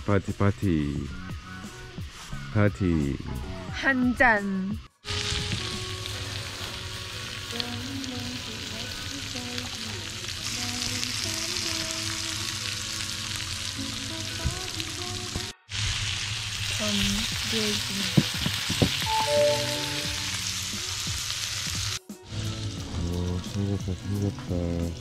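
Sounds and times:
food sizzling on a grill plate: 5.1 - 25.0.

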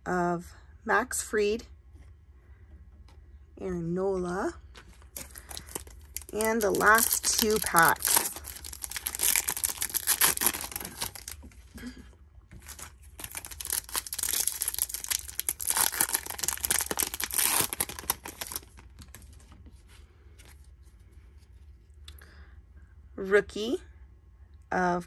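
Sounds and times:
foil wrapper crinkling and tearing: 4.8 - 19.5.

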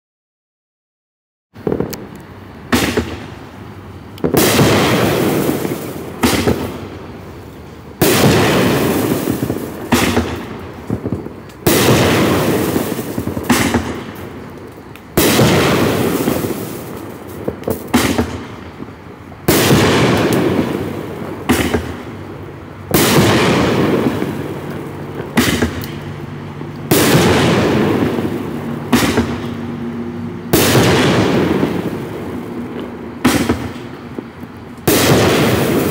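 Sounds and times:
firework shell hiss: 1.6 - 35.9
fireworks bangs: 1.6 - 35.9.

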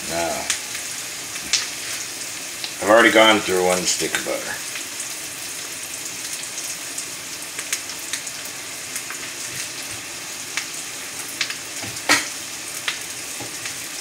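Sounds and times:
steak frying in a pan: 0.0 - 14.0
crackles and pops: 0.4 - 2.8, 7.5 - 8.3, 8.9 - 14.0.

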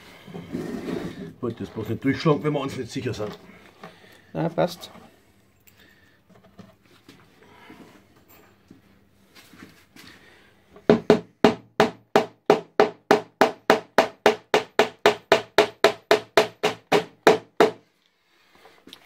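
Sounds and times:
hammer striking nail: 10.9 - 17.8.

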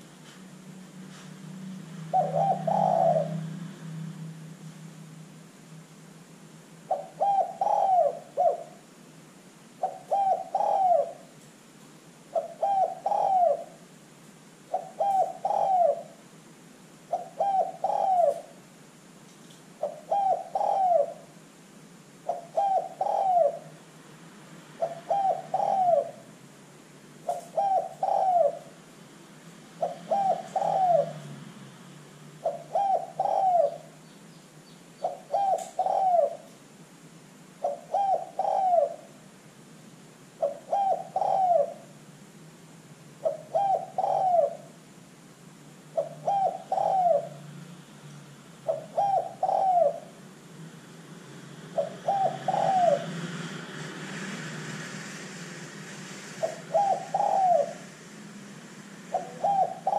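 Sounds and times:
dove cooing: 2.0 - 3.7, 6.9 - 8.9, 9.8 - 11.4, 12.3 - 13.9, 14.7 - 16.3, 17.1 - 18.6, 19.8 - 21.4, 22.2 - 23.8, 24.8 - 26.3, 27.2 - 28.8, 29.8 - 31.5, 32.4 - 34.0, 35.0 - 36.6, 37.6 - 39.2, 40.4 - 42.0, 43.2 - 44.8, 45.9 - 47.5, 48.6 - 50.2, 51.8 - 53.3, 56.4 - 57.9, 59.1 - 59.9.

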